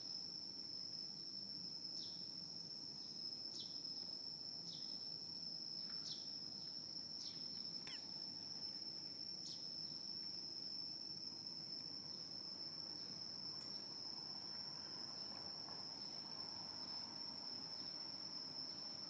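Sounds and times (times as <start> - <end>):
insects droning: 0.0 - 19.0
short falling chirps: 7.9 - 8.2.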